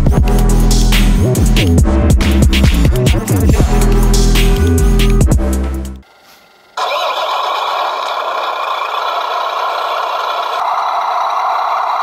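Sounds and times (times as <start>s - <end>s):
simulated diesel engine idling: 6.4s - 12.0s.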